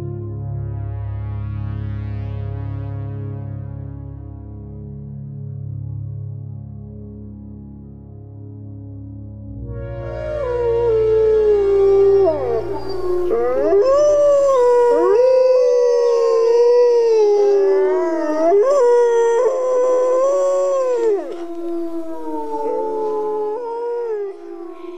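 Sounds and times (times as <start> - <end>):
wolves howling in chorus: 10.0 - 24.9.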